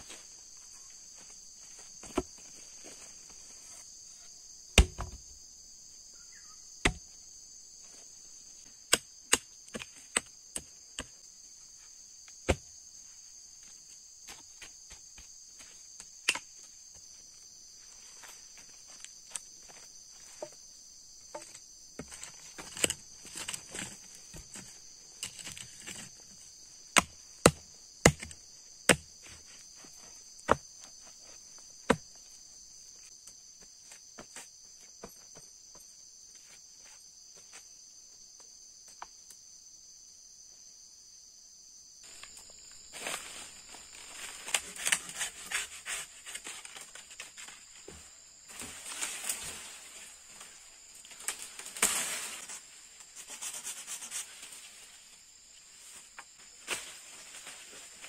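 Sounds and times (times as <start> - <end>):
high insect chorus: 0.0 - 58.0
knocks packing earth around post: 4.7 - 5.3, 6.8 - 7.2, 21.3 - 32.2, 42.0 - 50.0
knife hacking at a tree: 4.8 - 5.2, 6.8 - 7.2, 27.0 - 29.1.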